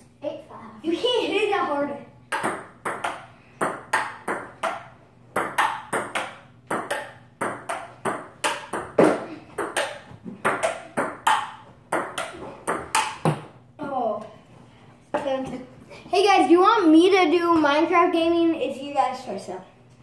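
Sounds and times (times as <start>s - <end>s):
ping pong ball clicking: 2.3s - 9.0s, 9.6s - 13.4s.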